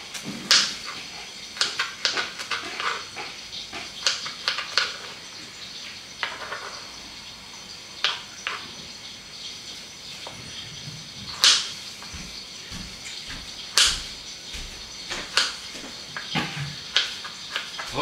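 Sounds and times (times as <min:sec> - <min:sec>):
dishes and utensils clattering: 0:00.0 - 0:05.5, 0:06.2 - 0:07.0, 0:10.2 - 0:18.0.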